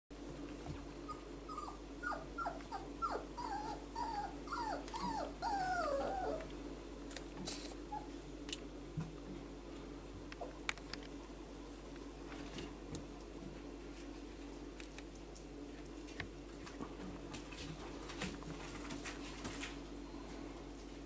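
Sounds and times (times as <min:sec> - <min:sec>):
puppy whining: 0:01.0 - 0:06.5, 0:07.8 - 0:08.2.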